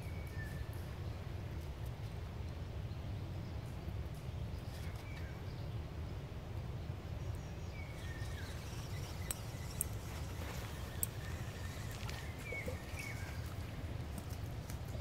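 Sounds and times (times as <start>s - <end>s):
faint bird chirps: 7.2s - 13.8s.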